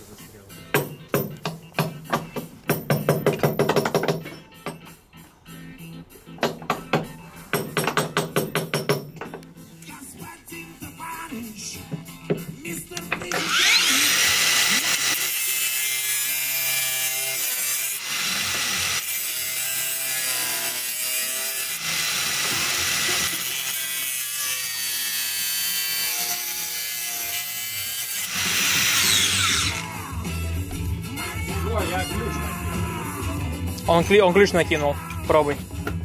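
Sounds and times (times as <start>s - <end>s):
power tool grinding: 12.9s - 30.6s.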